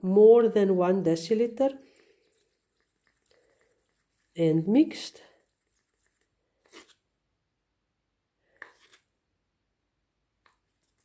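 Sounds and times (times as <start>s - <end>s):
stir stick scraping plastic cup: 1.3s - 7.1s, 8.5s - 9.2s, 10.4s - 11.0s.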